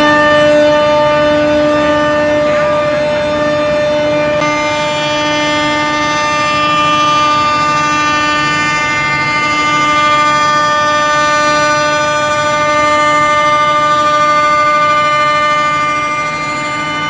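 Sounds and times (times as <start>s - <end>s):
milling machine motor whine: 0.0s - 17.0s.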